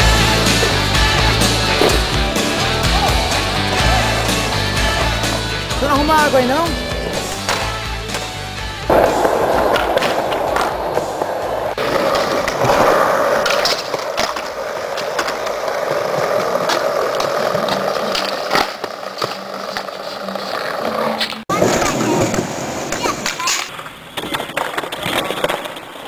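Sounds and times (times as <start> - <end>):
skateboard wheels rolling on concrete: 0.0 - 26.0
skateboard clacks: 6.2 - 26.0.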